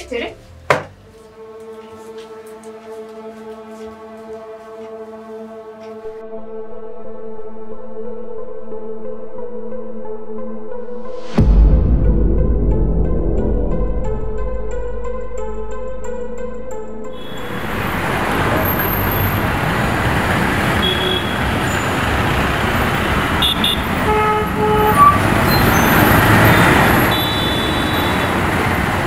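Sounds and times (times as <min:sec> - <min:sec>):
traffic engines and road noise: 0:17.2 - 0:29.0
vehicle horn toots: 0:17.2 - 0:29.0.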